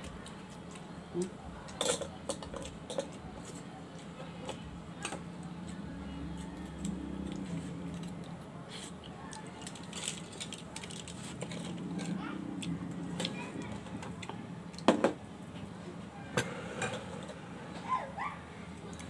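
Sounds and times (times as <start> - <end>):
low hum: 5.4 - 8.6.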